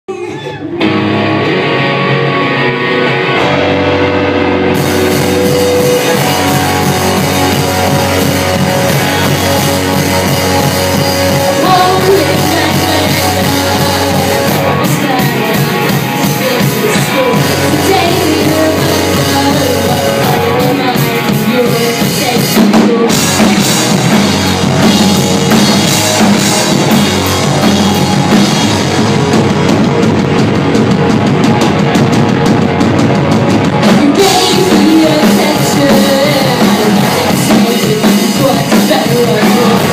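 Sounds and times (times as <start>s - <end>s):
live rock band playing: 0.6s - 39.9s
woman singing: 5.5s - 23.7s, 33.8s - 39.9s.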